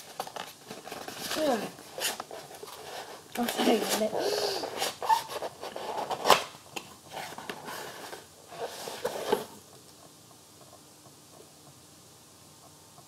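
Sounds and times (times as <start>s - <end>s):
cardboard packaging rustling: 0.0s - 9.6s.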